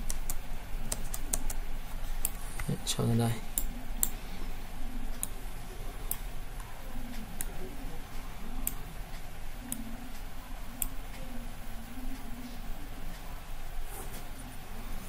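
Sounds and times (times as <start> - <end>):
computer mouse clicking: 0.0 - 1.6
faint steady hum: 0.0 - 15.0.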